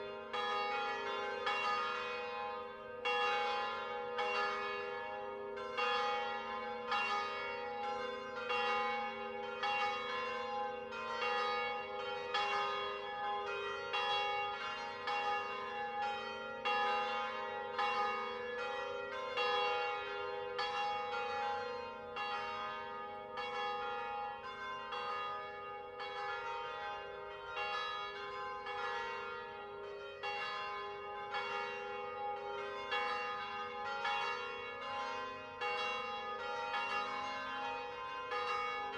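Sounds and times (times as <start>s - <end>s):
large church bells ringing: 0.0s - 38.9s.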